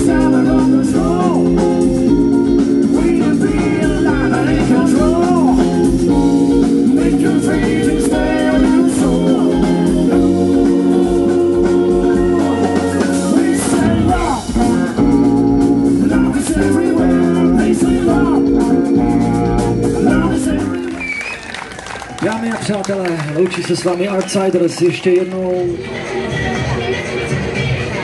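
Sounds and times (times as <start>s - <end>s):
man singing: 0.0s - 2.1s, 2.8s - 21.0s
electric guitars: 0.0s - 22.0s
drums: 0.0s - 22.9s, 25.2s - 28.0s
organ-like keyboard: 0.0s - 27.9s.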